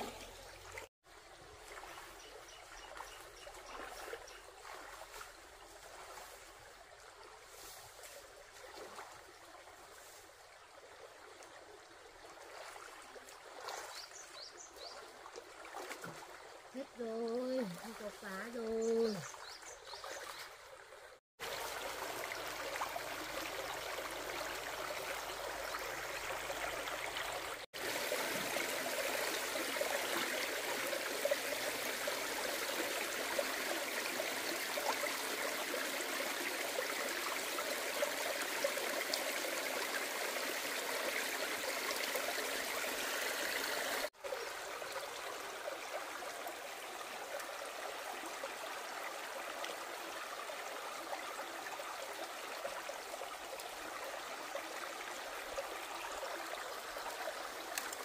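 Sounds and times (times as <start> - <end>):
stream water flowing: 0.0 - 58.0.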